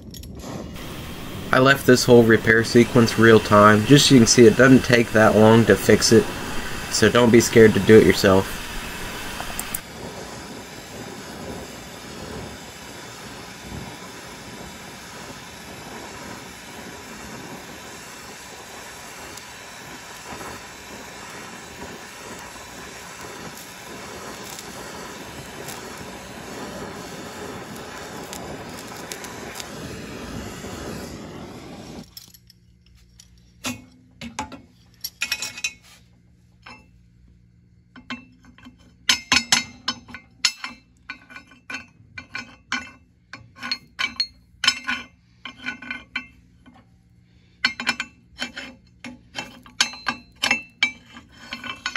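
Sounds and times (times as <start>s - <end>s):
gas torch flame hissing: 0.3s - 32.1s
light metallic clinks: 32.0s - 34.0s.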